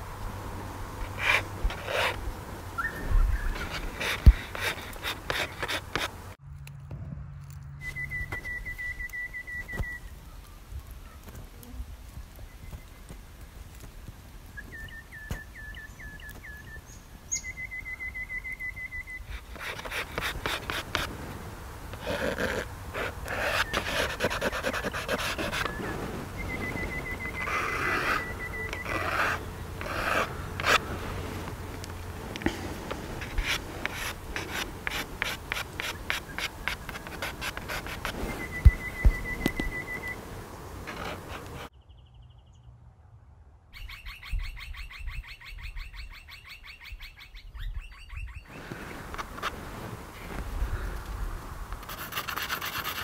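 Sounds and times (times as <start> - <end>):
charcoal scratching on paper: 1.2 - 2.2, 3.6 - 6.2, 19.3 - 21.1, 22.0 - 25.8, 27.3 - 30.9, 32.9 - 38.4, 51.8 - 53.0
whistled trill: 7.8 - 10.1, 26.4 - 28.9, 38.3 - 40.2.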